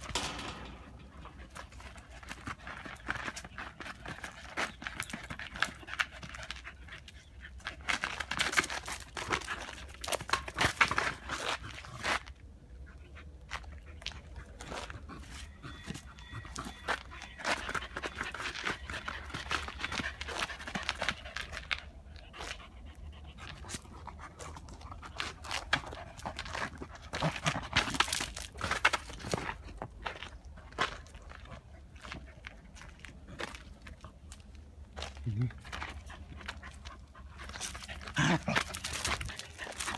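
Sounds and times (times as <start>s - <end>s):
ball and paws scuffing pavement: 0.0s - 39.9s
small dog panting: 13.8s - 27.6s, 35.8s - 39.9s.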